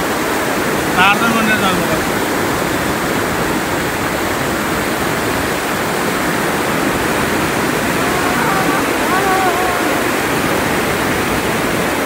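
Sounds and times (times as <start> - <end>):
fast-flowing river water: 0.0 - 12.0.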